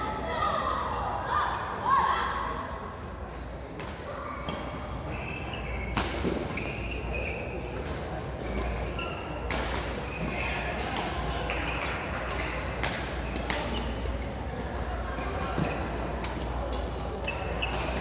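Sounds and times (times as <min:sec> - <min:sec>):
shoes squeaking on court: 0:04.3 - 0:18.0.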